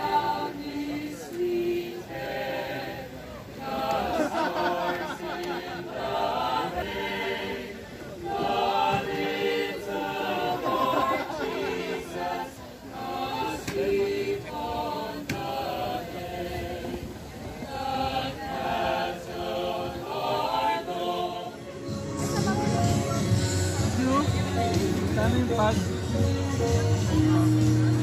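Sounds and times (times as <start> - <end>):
mixed choir singing: 0.0 - 25.1.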